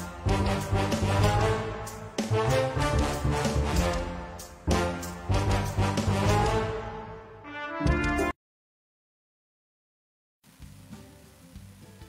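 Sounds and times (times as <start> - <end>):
instrumental theme music: 0.0 - 8.4.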